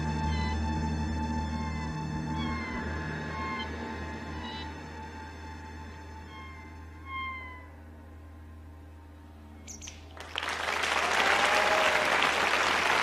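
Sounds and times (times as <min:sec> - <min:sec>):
band sustained notes: 0:00.0 - 0:11.5
audience applause: 0:10.1 - 0:13.0.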